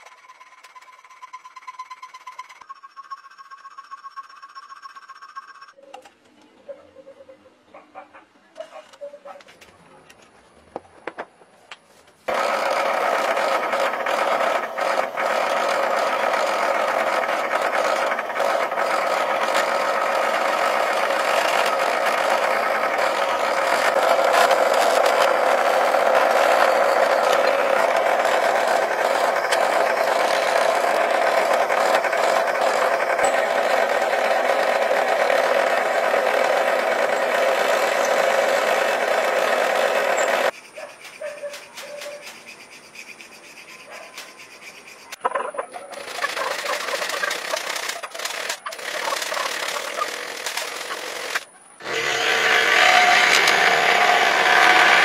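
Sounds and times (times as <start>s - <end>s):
drill bit boring through metal: 0.0s - 5.7s, 12.3s - 40.5s, 46.0s - 55.0s
drill press motor running: 12.3s - 40.5s, 45.9s - 55.0s
file scraping on steel: 12.3s - 45.2s.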